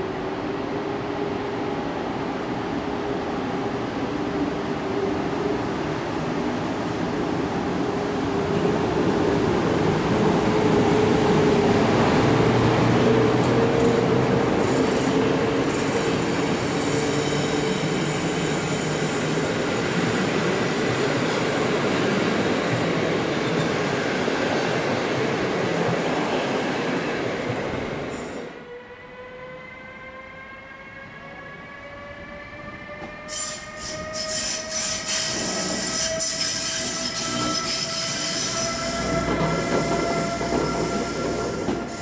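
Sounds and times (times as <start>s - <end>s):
train wheels on rails: 9.6s - 28.5s, 32.9s - 42.0s
electric locomotive whine: 28.1s - 42.0s.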